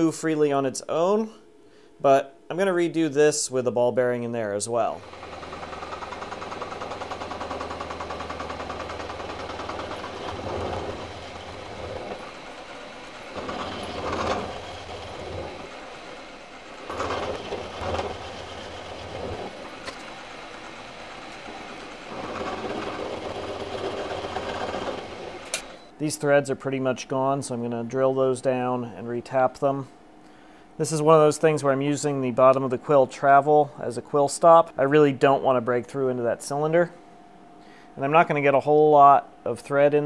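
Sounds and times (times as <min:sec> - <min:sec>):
end mill cutting metal: 0:04.8 - 0:25.9
milling machine motor hum: 0:04.8 - 0:25.9.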